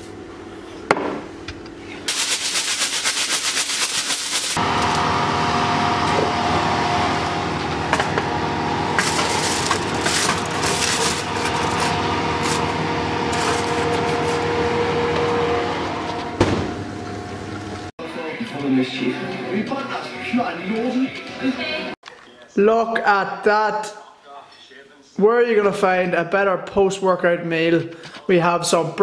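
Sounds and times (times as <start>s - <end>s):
steady hum: 0.0s - 17.9s
aluminium foil crinkling: 2.1s - 4.6s, 9.0s - 14.5s.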